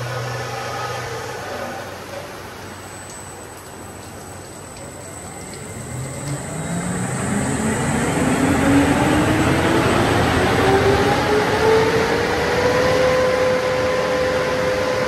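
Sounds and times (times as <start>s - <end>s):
motor whine rising in pitch: 5.0s - 15.0s
rush of noise: 5.3s - 15.0s.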